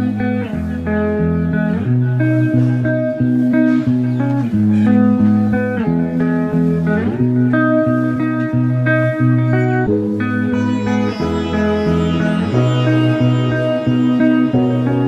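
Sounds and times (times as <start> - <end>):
guitar tune: 0.0 - 15.0
bass line: 8.6 - 15.0.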